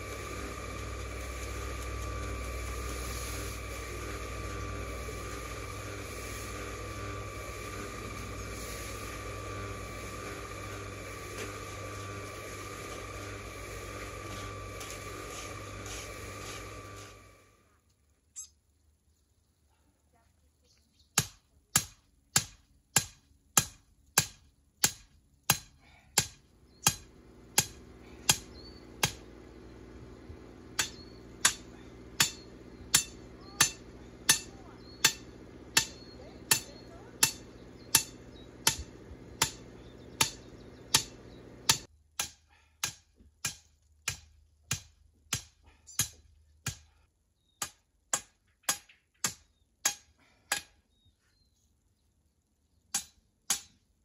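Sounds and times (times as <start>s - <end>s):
steady humming drone: 0.0s - 17.7s, 25.6s - 41.9s.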